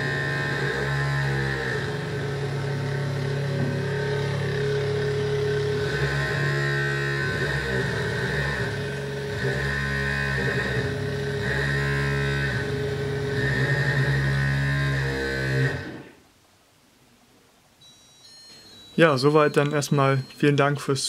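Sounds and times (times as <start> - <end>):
robot vibration motors buzzing: 0.0 - 16.2.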